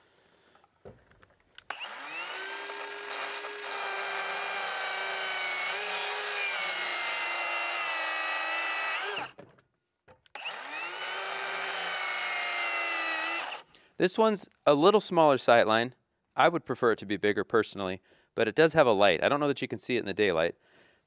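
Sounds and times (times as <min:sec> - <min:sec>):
circular saw cutting wood: 0:01.6 - 0:09.4, 0:10.3 - 0:13.7.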